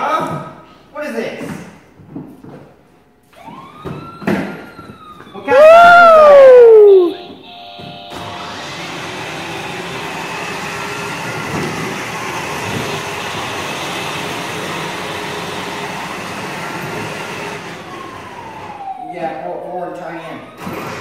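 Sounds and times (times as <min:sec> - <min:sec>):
toy fire truck siren: 0:03.3 - 0:12.6, 0:15.2 - 0:21.0
electric motor whirring: 0:08.1 - 0:13.9.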